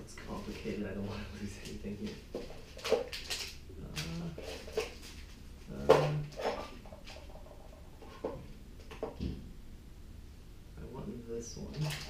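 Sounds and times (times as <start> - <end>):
plastic bag rustling: 0.2 - 8.4, 11.7 - 12.0.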